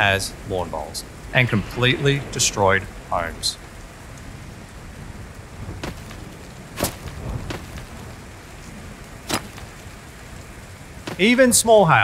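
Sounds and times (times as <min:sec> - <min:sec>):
heavy rain and hail on house: 0:00.0 - 0:12.0
hailstones cracking through roof: 0:02.8 - 0:11.7.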